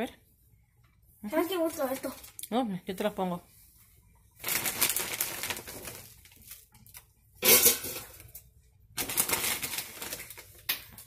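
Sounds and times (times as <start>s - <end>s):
plastic bag crinkling: 1.7s - 2.6s, 4.3s - 11.0s
frozen fries rattling in a basket: 4.4s - 11.0s.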